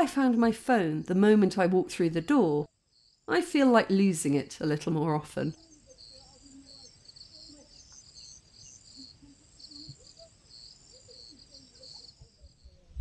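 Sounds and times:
crickets chirping: 2.6 - 3.7, 5.5 - 13.0.

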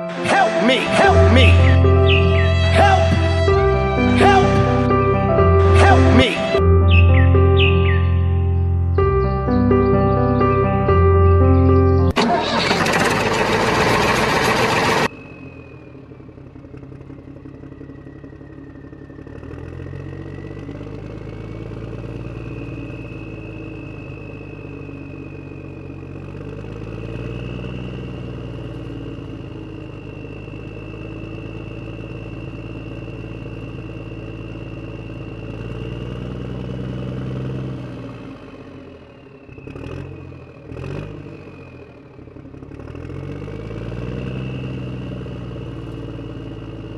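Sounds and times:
tractor engine revving: 0.0 - 46.9
faint high whine: 17.2 - 36.6.

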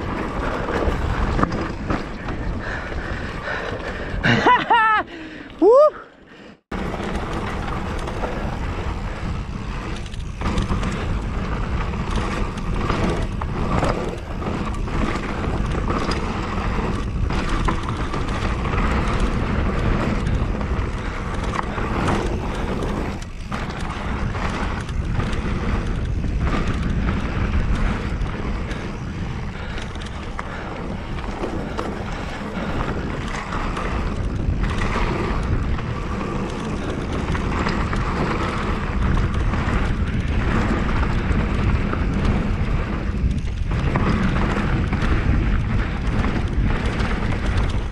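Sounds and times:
bike knocks and rattles: 0.0 - 3.6, 6.7 - 47.9
tyres rumbling on dirt: 0.0 - 4.8, 6.7 - 47.9
wind buffeting microphone: 0.0 - 5.4, 6.6 - 47.9.

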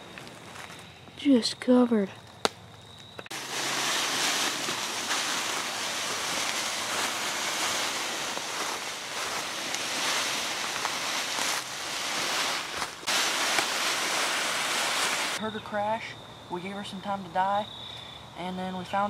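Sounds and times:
footsteps in leaves: 3.3 - 15.4
leaves rustling from dragging: 3.3 - 15.4.

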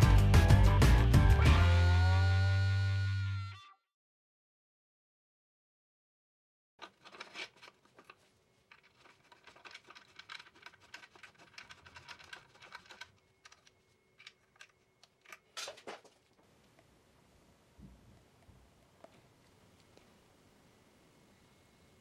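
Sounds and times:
loud scrape: 6.8 - 12.9
gloved hands handling bicycle parts: 6.8 - 16.8.

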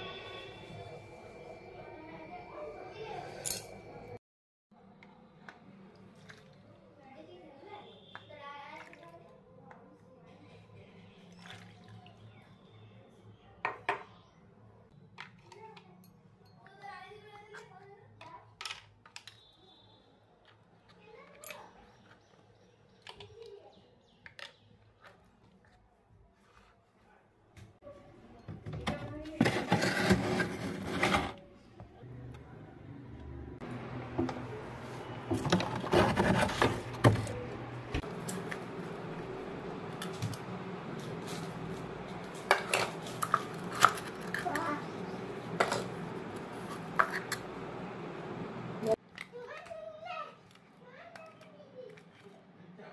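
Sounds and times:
plastic mould scraping on shelf: 29.4 - 31.4, 35.3 - 37.3.

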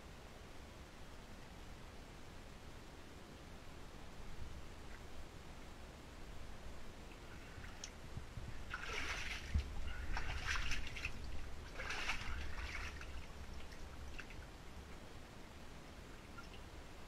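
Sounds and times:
shallow water splashing: 8.5 - 14.6.

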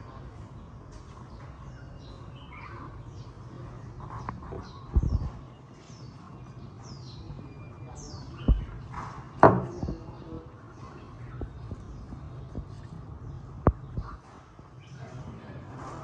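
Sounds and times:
small birds chirping: 0.0 - 16.0
dull knocks: 8.5 - 8.8, 9.4 - 10.1.

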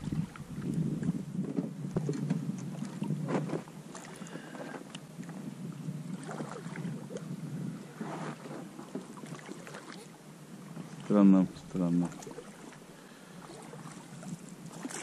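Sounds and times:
wind on microphone: 0.0 - 3.7, 5.2 - 8.6
water lapping at hull: 0.0 - 15.0
oars splashing: 6.1 - 7.2, 7.9 - 15.0.

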